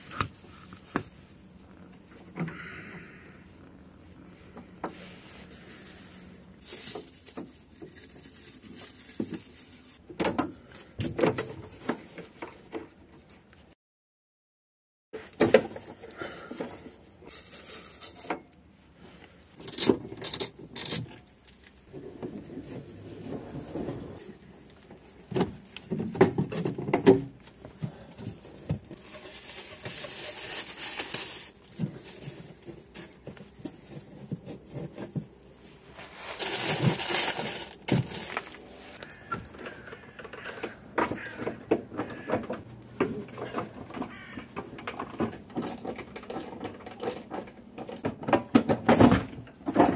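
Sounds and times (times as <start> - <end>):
plastic bag rustling: 5.0 - 10.0, 28.9 - 39.6
tools clicking knocking and scraping: 19.6 - 21.2.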